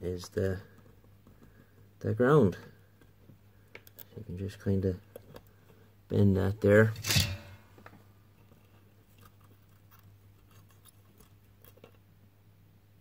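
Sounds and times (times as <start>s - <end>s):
small clicks of cable handling: 3.0s - 4.2s.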